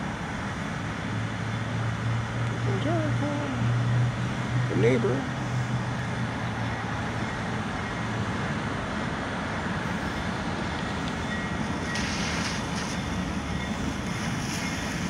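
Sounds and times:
diesel train rumbling: 0:00.0 - 0:15.0
road traffic: 0:00.0 - 0:15.0
car tyre hiss: 0:11.0 - 0:15.0.

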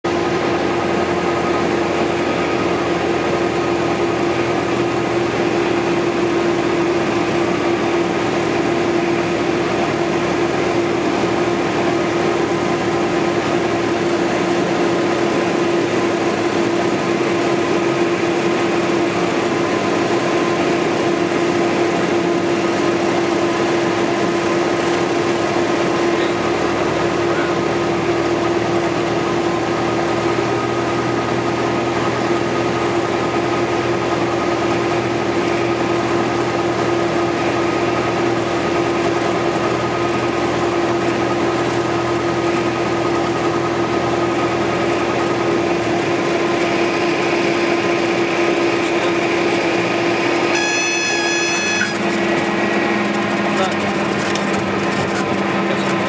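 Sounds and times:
constant cockpit hum: 0:00.0 - 0:56.0
light aircraft engine droning: 0:00.1 - 0:56.0.

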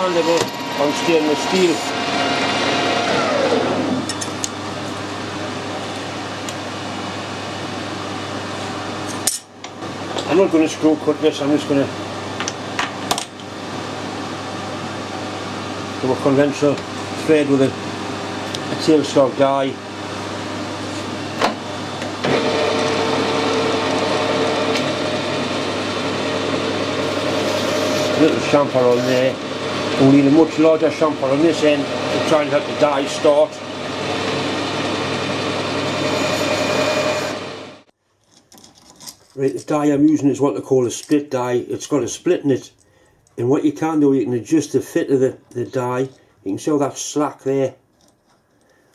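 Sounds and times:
lathe spindle whine winding down: 0:00.0 - 0:04.2, 0:22.2 - 0:37.8
low machine hum: 0:00.0 - 0:37.9.

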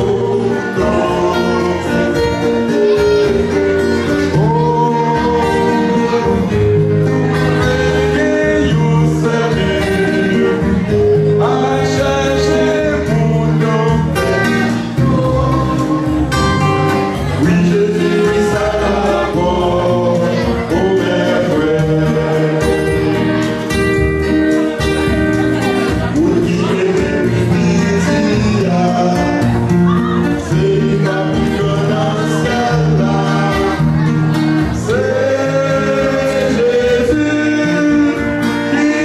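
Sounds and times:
person singing gospel song: 0:00.0 - 0:23.9, 0:25.6 - 0:39.0
guitar accompaniment: 0:00.0 - 0:39.0.

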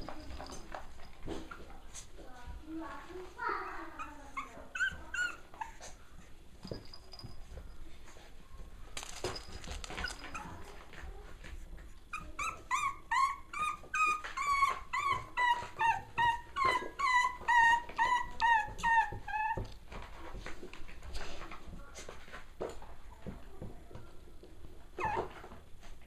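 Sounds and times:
puppies scuffling and clicking: 0:00.0 - 0:26.0
puppy yipping: 0:04.0 - 0:06.0, 0:12.1 - 0:19.7, 0:25.0 - 0:25.5.

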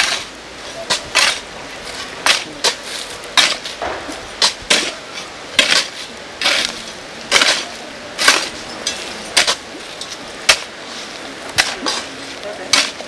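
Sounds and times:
metal tool scraping earth: 0:00.0 - 0:13.0.

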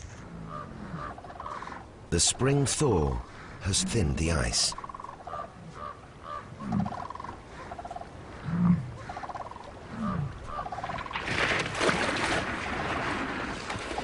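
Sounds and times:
bison grunting: 0:03.3 - 0:04.6, 0:07.6 - 0:10.8.

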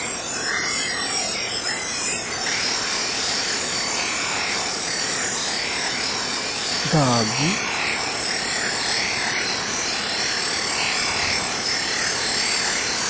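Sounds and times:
static-like hissing noise: 0:03.8 - 0:13.0
thin high whine: 0:06.7 - 0:08.3.

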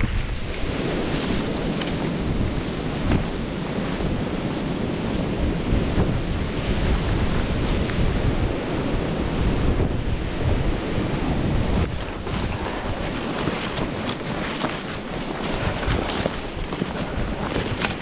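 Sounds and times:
wind buffeting microphone: 0:00.0 - 0:18.0
footsteps crunching through snow: 0:11.9 - 0:18.0.

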